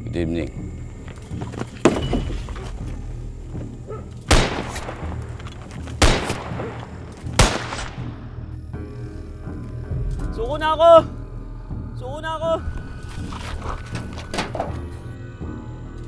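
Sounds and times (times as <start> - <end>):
pistol shots with ringing tail: 4.3 - 5.4, 6.0 - 8.3.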